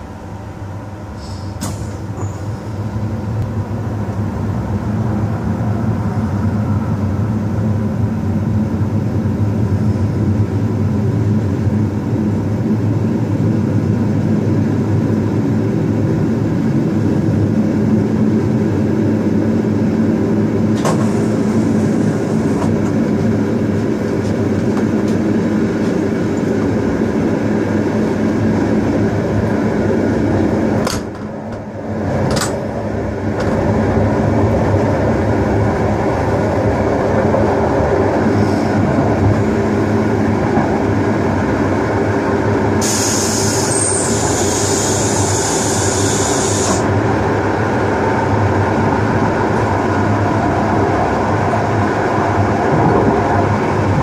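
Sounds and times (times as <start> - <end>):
train wheels rumbling: 0.0 - 54.0
rush of hiss: 42.8 - 46.8.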